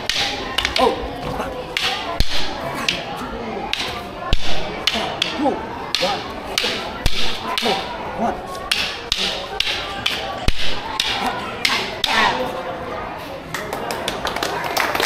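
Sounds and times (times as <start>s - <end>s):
sticks clacking together: 0.0s - 3.1s, 3.7s - 8.0s, 8.6s - 12.4s.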